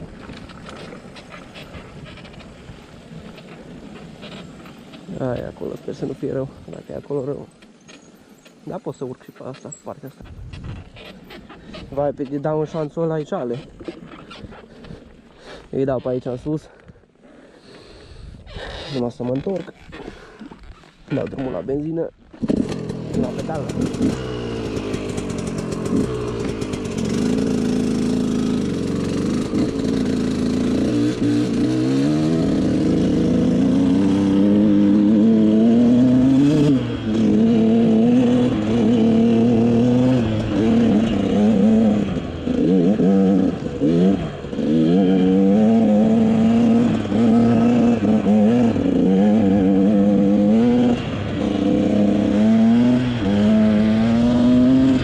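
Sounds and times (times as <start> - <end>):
dirt bike engine revving: 21.1 - 55.0.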